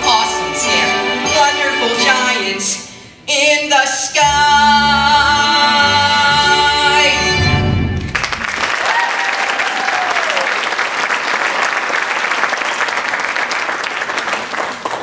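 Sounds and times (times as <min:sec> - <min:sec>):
audience applauding: 0:08.0 - 0:15.0.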